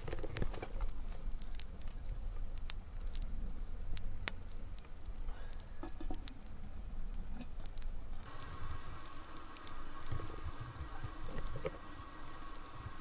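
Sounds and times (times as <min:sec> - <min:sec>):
embers crackling: 0:00.0 - 0:13.0.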